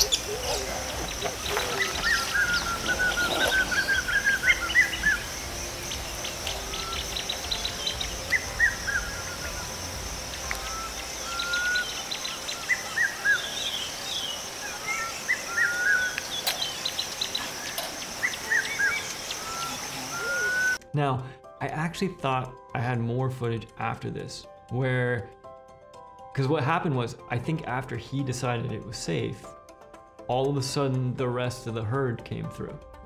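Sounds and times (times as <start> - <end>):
birds chirping and calling: 0.0 - 20.8.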